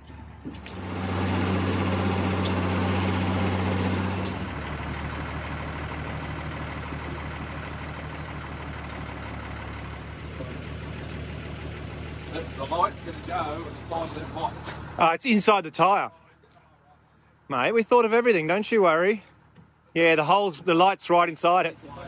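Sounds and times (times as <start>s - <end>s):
crane engine revving: 0.0s - 15.0s.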